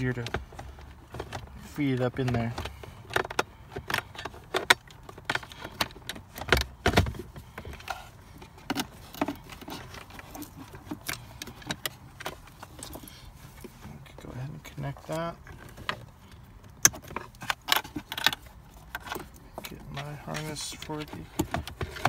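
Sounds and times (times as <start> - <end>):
plastic connectors clicking and rattling: 16.7 - 22.0.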